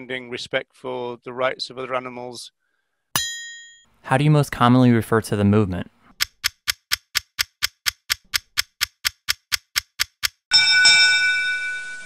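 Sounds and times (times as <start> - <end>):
clock ticking: 6.1 - 10.5
chime tones: 10.5 - 12.0.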